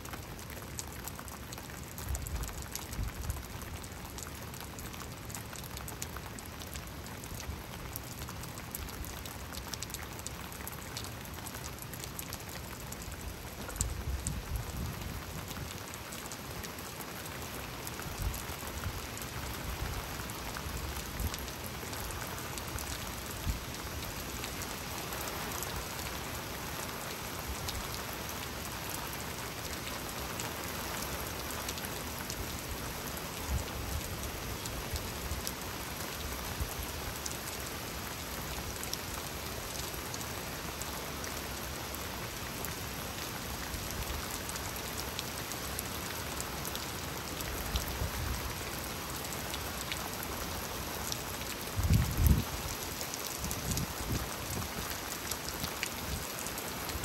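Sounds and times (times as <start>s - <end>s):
steady rainfall: 0.0s - 57.0s
raindrops ticking: 0.1s - 27.9s.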